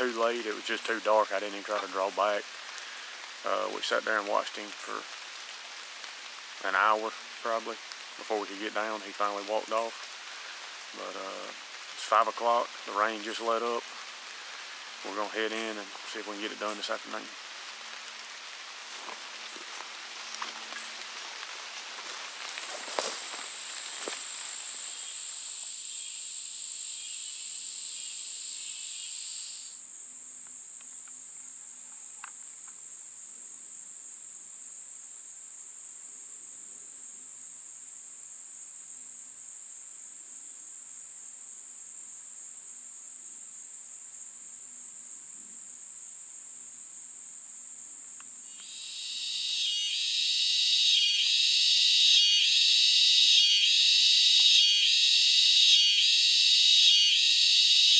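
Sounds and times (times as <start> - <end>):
insect noise: 0.0 - 57.9
pulsing insect chorus: 0.0 - 57.9
high-pitched insect trill: 18.9 - 57.9.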